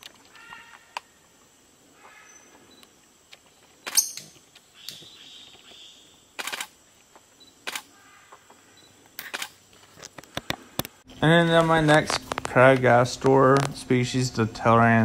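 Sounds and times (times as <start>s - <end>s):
sharp dry clicks: 2.8s - 5.0s, 6.4s - 7.9s, 9.2s - 11.0s.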